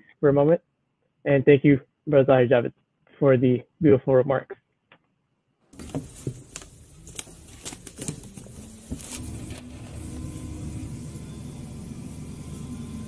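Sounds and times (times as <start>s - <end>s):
packages knocking and rustling: 5.8s - 9.8s.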